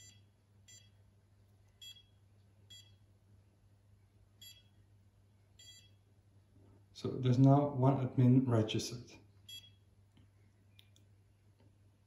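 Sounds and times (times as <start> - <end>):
faint short electronic beeps: 1.8 - 3.0, 4.4 - 4.8, 5.6 - 6.0, 9.5 - 9.8.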